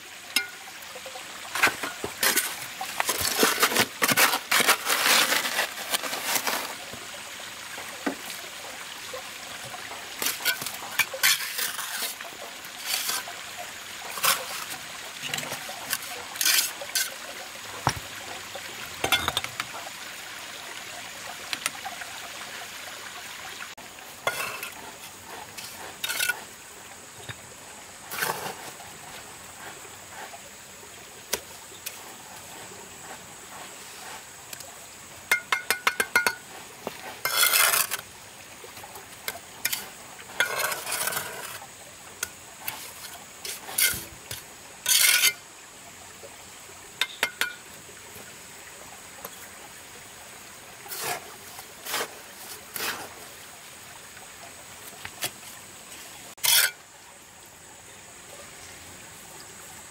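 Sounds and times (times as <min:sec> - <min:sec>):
trowel scraping mortar: 0:01.6 - 0:06.8, 0:10.2 - 0:13.3, 0:14.1 - 0:17.2, 0:24.3 - 0:26.6, 0:28.1 - 0:28.8, 0:35.7 - 0:38.1, 0:39.6 - 0:41.6, 0:42.7 - 0:45.4, 0:50.9 - 0:53.2, 0:56.4 - 0:56.8
bricks tapping and clinking: 0:19.0 - 0:19.7, 0:35.3 - 0:38.0.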